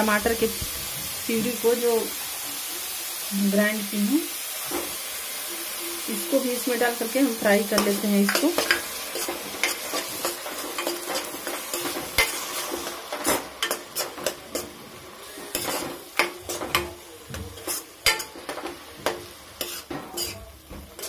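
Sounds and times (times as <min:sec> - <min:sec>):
frying sizzle: 0:00.0 - 0:21.0
spatula scraping pan: 0:07.2 - 0:21.0.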